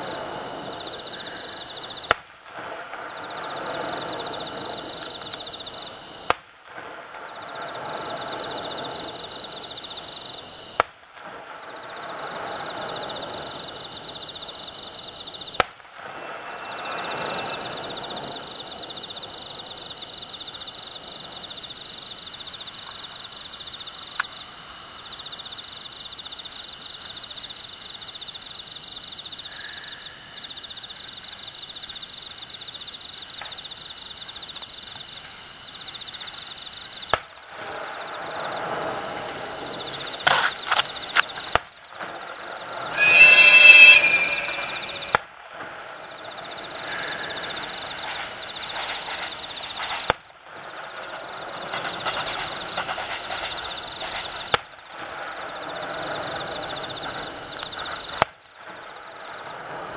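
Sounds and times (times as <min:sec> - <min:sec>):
steady high trill: 0:42.9 - 0:45.2
firework shells bursting: 0:42.9 - 0:45.3.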